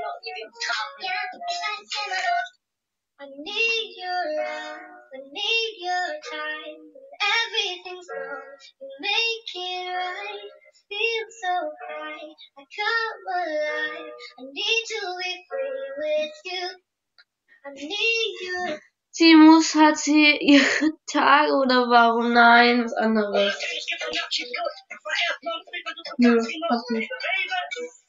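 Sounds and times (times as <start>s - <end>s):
girls singing unaccompanied: 0.0s - 2.5s, 3.2s - 16.8s, 17.7s - 18.8s.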